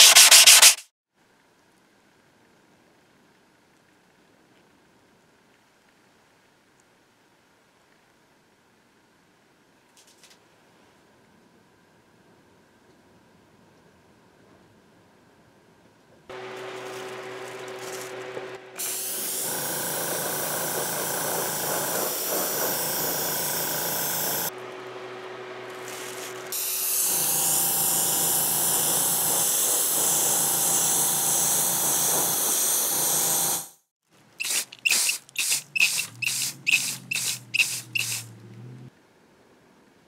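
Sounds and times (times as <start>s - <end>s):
compressor humming: 16.3s - 26.6s
spray gun hissing: 16.4s - 24.5s, 34.4s - 38.3s.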